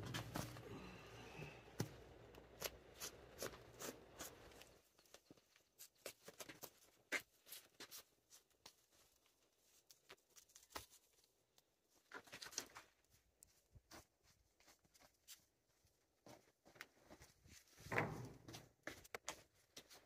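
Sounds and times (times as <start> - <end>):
rustles and soft ticks of handling: 0.0 - 20.0.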